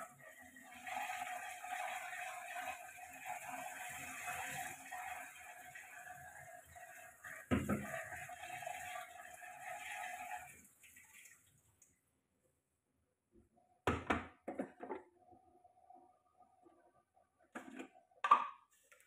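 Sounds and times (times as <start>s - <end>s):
hand washing dishes: 0.0s - 11.6s
tap running into sink: 7.5s - 8.0s.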